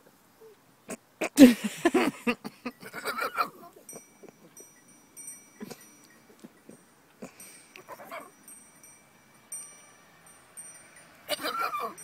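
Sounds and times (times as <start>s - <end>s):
goat call: 2.6s - 4.8s, 5.6s - 8.3s, 11.3s - 12.0s
faint high ringing tones: 3.8s - 12.0s.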